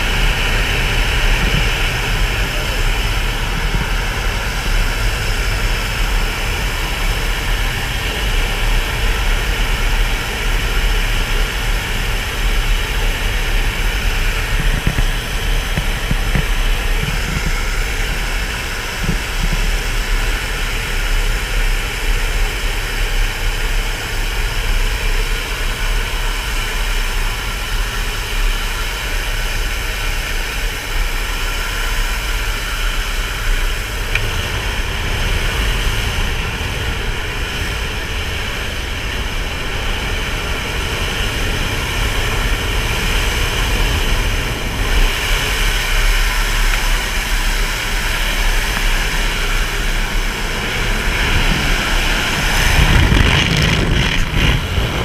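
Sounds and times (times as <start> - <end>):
plane engine drone: 0.0 - 55.0
air rushing through open door: 45.0 - 55.0.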